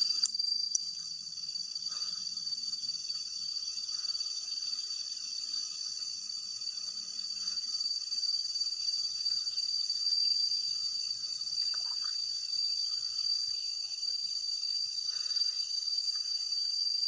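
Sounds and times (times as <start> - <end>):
night insects trilling: 0.0 - 17.0.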